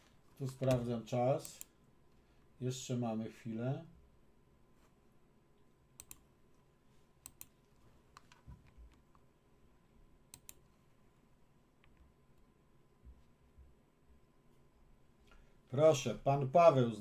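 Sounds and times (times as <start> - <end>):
computer mouse clicks: 6.0 - 6.3, 7.2 - 9.3, 10.3 - 10.7.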